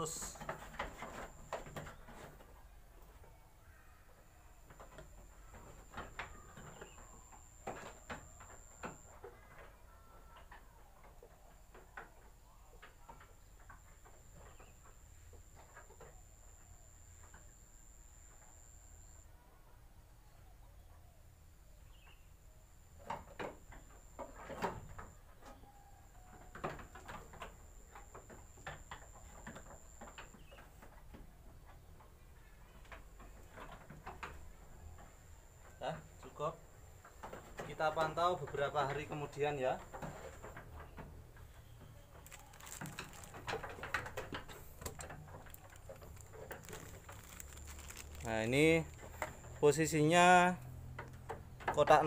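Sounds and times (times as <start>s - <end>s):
sheep bumping wooden slats: 0.4s - 2.6s, 23.0s - 52.0s.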